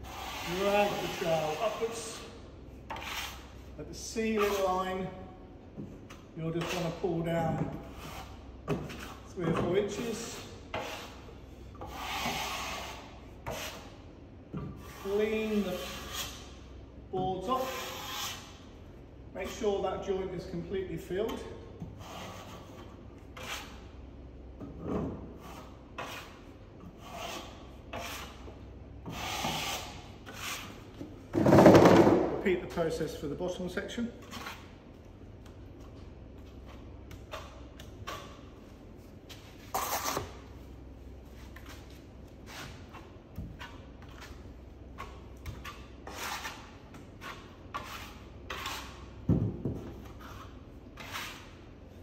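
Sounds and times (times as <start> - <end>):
trowel scraping plasterboard: 0.0 - 5.1, 6.1 - 14.0, 14.7 - 16.6, 17.3 - 18.6, 19.4 - 20.1, 21.2 - 23.9, 24.8 - 31.9, 34.2 - 34.8, 36.5 - 38.6, 39.3 - 40.5, 41.3 - 52.0.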